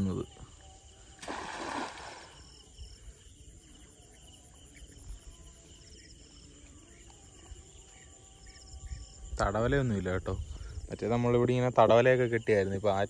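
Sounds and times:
insects trilling: 0.0 - 13.0
net splashing into water: 1.2 - 2.5.

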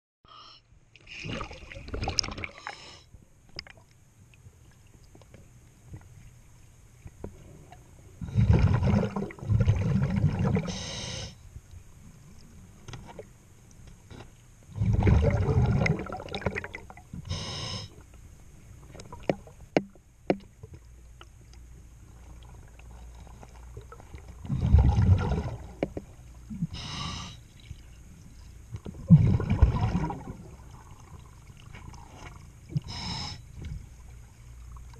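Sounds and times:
diver exhaling bubbles underwater: 8.2 - 10.8, 14.7 - 17.5, 24.4 - 25.8, 29.0 - 32.1.

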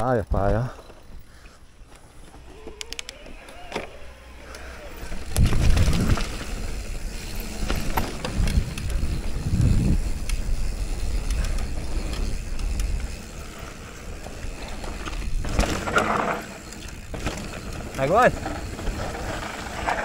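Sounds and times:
tyres on dirt trail: 0.0 - 20.0
bike knocks and rattles: 5.2 - 13.3, 14.2 - 20.0
wind on microphone: 8.2 - 13.1.

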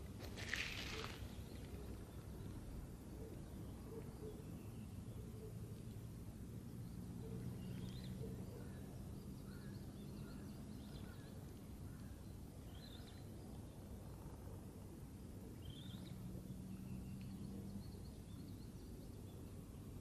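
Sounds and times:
faint bird chirps: 15.5 - 19.6.

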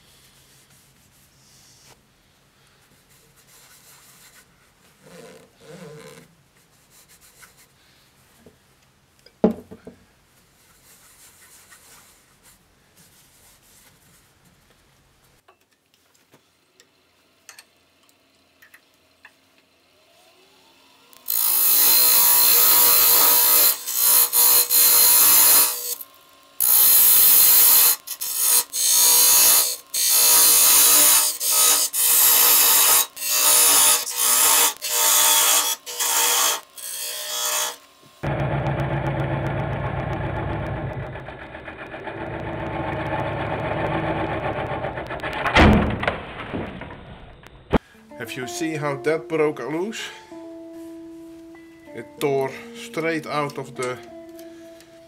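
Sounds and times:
cloth rubbing wood: 3.1 - 7.7
turning tool cutting wood: 20.0 - 45.6
lathe motor whine: 37.9 - 45.2.

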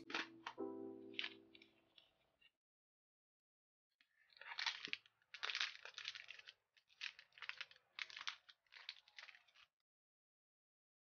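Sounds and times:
plastic bag crinkling: 4.2 - 9.7.

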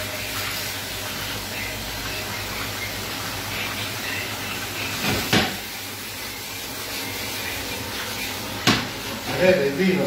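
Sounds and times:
mushrooms sizzling in a pan: 0.0 - 10.0.

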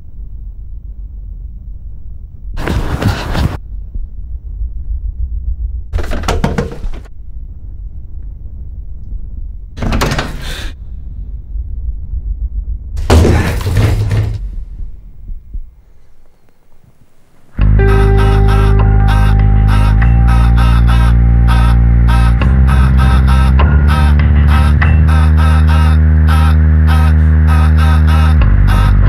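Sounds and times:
low rumble: 0.0 - 6.2, 7.0 - 9.8, 10.8 - 16.2
loud crashing bursts: 13.0 - 14.8.

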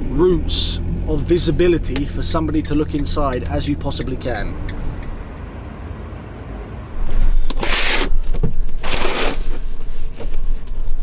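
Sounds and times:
curtain sliding along track: 8.8 - 9.6.

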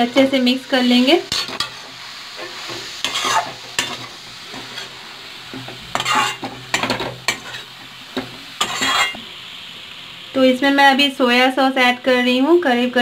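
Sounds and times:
frying sizzle: 0.0 - 13.0
spatula scraping metal pan: 1.2 - 4.9, 5.6 - 7.7, 8.6 - 9.2.

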